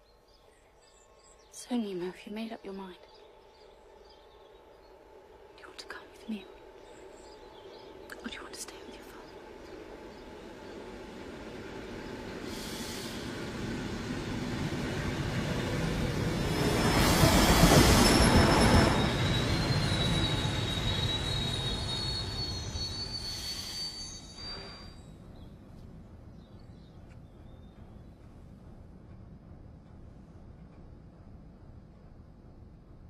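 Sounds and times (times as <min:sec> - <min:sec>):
train rumble: 0:00.8 - 0:33.0
wheels squealing on rails: 0:10.7 - 0:25.3.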